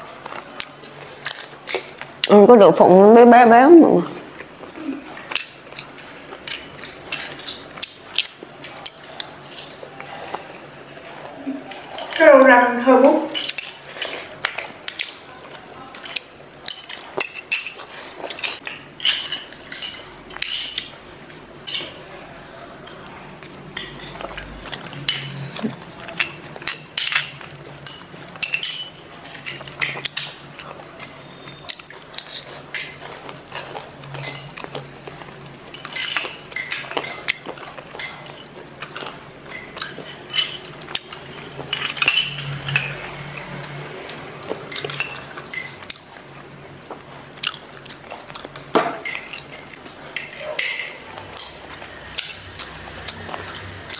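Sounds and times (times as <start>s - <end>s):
spoons clinking against ceramic bowls: 13.1s - 14.1s, 15.9s - 21.0s, 21.6s - 22.1s, 23.7s - 43.8s, 44.4s - 46.2s, 48.8s - 53.9s.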